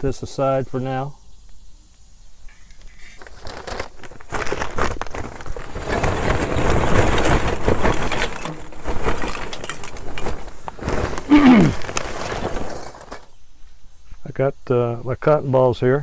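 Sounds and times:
charcoal clattering into grill: 0:02.8 - 0:13.3
paper bag rustling: 0:02.8 - 0:13.3.

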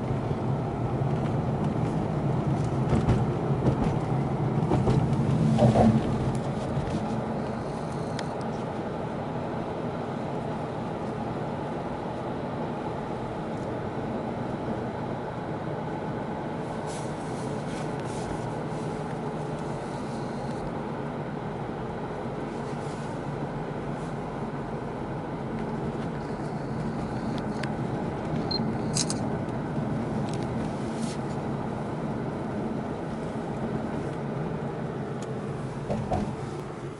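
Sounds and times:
vehicle rumbling over bridge: 0:00.0 - 0:11.4, 0:23.2 - 0:36.9.

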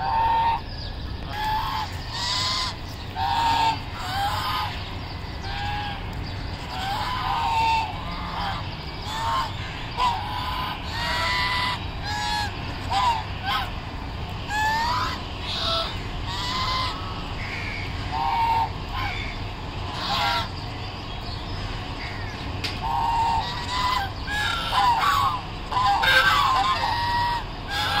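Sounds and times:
geese honking: 0:00.0 - 0:20.8, 0:21.5 - 0:28.0
steady low rumble: 0:00.0 - 0:28.0.

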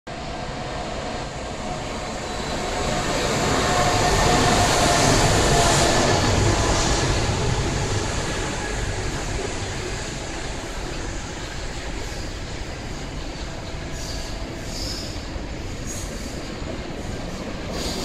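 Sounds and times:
freight train passing: 0:00.1 - 0:18.0.

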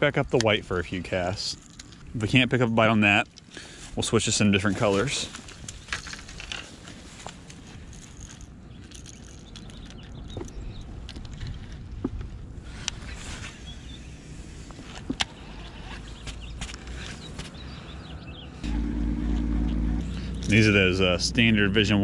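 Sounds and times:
fishing tackle clicks and knocks: 0:08.0 - 0:12.3.

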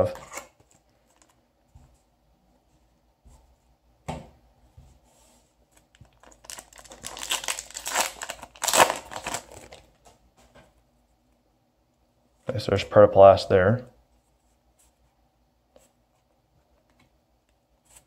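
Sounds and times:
foil wrapper crinkling and tearing: 0:06.0 - 0:10.0.

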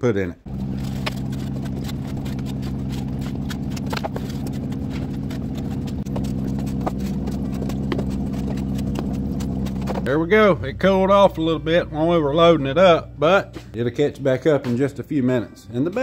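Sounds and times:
steady mechanical hum: 0:00.5 - 0:13.6.

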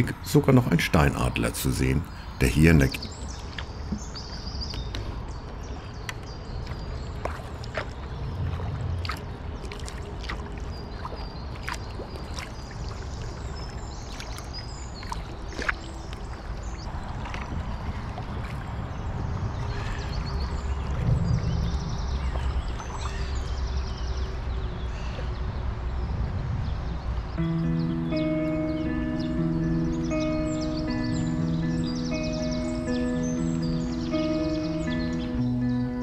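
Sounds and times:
kayak paddle strokes in water: 0:03.0 - 0:19.8
water dripping and splashing: 0:03.0 - 0:24.3
low steady rumble: 0:08.0 - 0:09.7.

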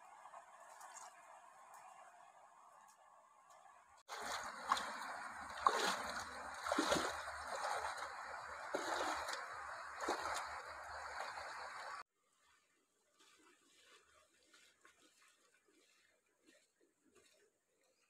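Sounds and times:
water sloshing around wading legs: 0:04.0 - 0:18.0
loud splashes: 0:04.1 - 0:12.0.

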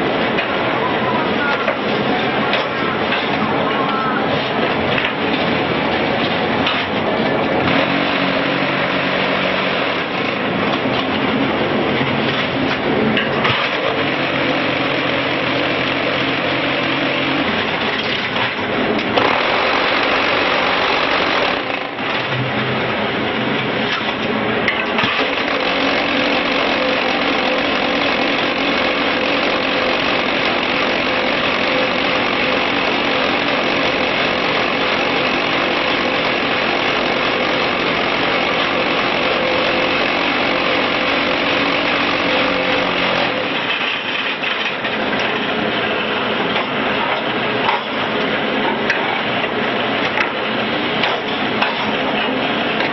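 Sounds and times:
block machine mechanical din: 0:04.7 - 0:23.2, 0:24.0 - 0:45.4.

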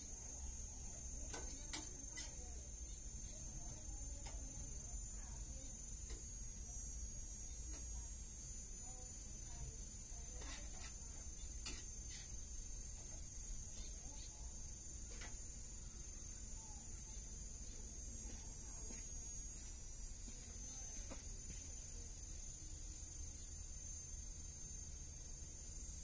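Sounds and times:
insects chirring: 0:00.0 - 0:26.0.

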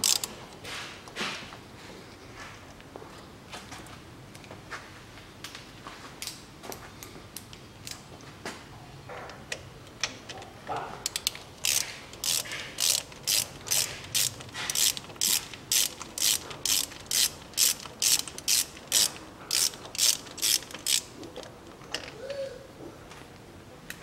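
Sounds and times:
hand ratchet clicking: 0:00.0 - 0:00.3, 0:11.0 - 0:22.1.

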